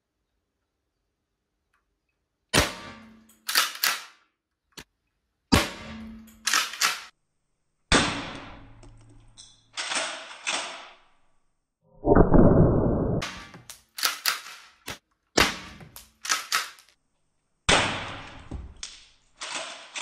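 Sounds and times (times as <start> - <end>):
launcher shots: 2.6 - 4.2, 13.2 - 16.9.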